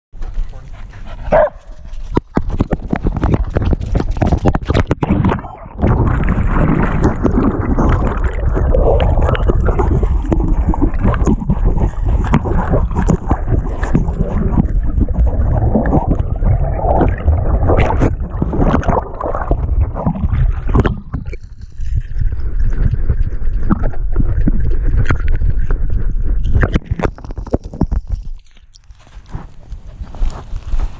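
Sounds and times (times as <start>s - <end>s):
water splashing and gurgling: 1.4s - 28.9s
camera rubbing on microphone: 25.0s - 30.9s.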